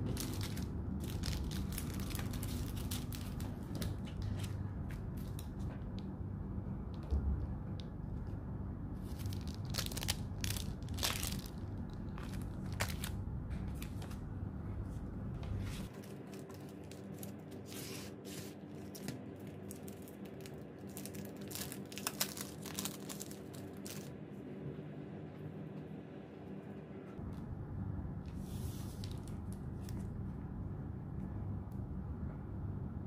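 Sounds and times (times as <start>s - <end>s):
plastic sleeves crinkling: 0.0s - 5.5s, 9.0s - 14.3s, 15.5s - 24.1s.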